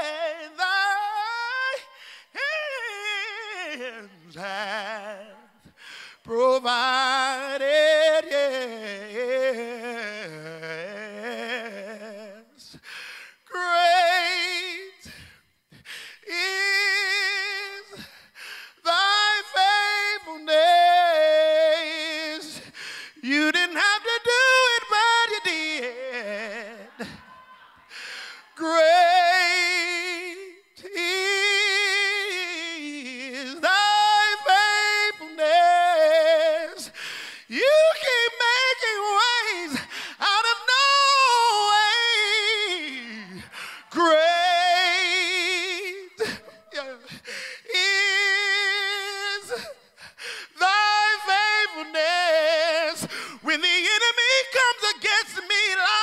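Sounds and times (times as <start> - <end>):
man singing a cappella: 0.0 - 56.0
man taking a breath: 2.0 - 2.3, 5.7 - 6.2, 12.8 - 13.4, 15.1 - 16.2, 18.0 - 18.8, 22.6 - 23.2, 27.9 - 28.5, 36.9 - 37.5, 39.9 - 40.2, 43.4 - 43.9, 47.1 - 47.7, 49.9 - 50.6, 53.1 - 53.4.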